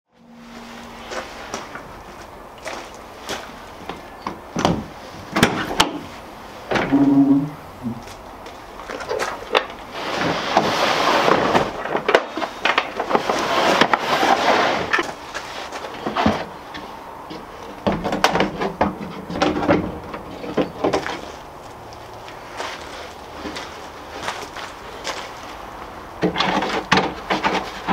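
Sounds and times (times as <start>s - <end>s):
box scraping across truck bed: 0.2s - 4.0s, 9.0s - 17.5s, 22.4s - 27.9s.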